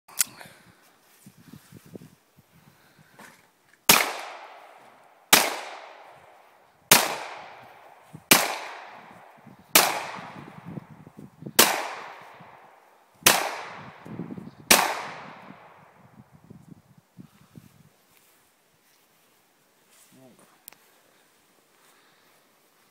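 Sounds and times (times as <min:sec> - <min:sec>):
pistol shots with echo: 0:03.9 - 0:04.7, 0:05.3 - 0:06.2, 0:06.9 - 0:10.6, 0:11.6 - 0:14.1, 0:14.7 - 0:15.8.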